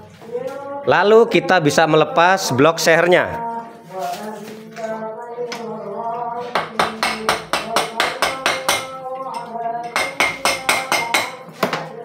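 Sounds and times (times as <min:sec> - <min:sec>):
background music: 0:00.0 - 0:12.0
hammer striking engine block: 0:06.5 - 0:09.0, 0:09.8 - 0:11.9.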